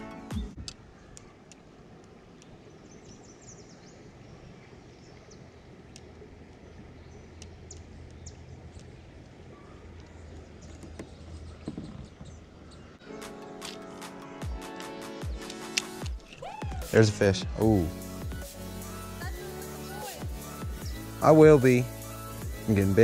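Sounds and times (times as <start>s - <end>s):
small clicks: 15.4s - 16.4s.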